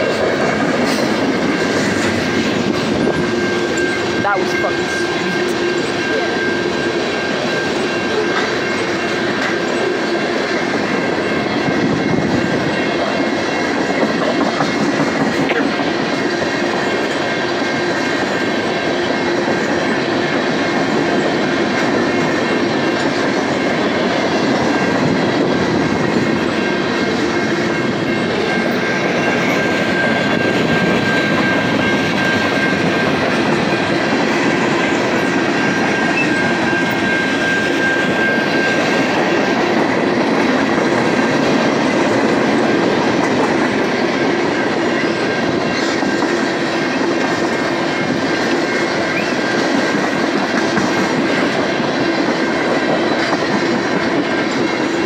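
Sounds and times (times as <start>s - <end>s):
freight train wheels clattering on rails: 0.0s - 55.0s
high-pitched squeal: 21.0s - 50.4s.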